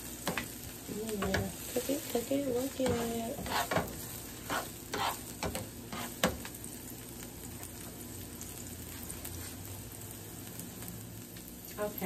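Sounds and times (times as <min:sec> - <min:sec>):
vegetables sizzling on griddle: 0:00.0 - 0:12.0
spatula scraping and knocking pan: 0:02.6 - 0:06.5.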